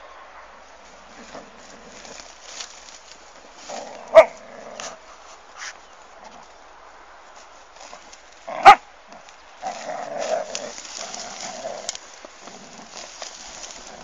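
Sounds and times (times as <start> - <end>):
rough dog noises: 1.0 - 6.6, 7.8 - 14.0
mattress cover rustling and scraping: 9.6 - 14.0.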